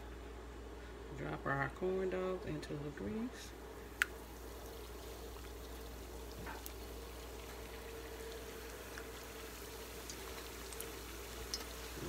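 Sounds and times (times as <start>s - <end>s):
food deep-frying in oil: 4.0s - 12.0s.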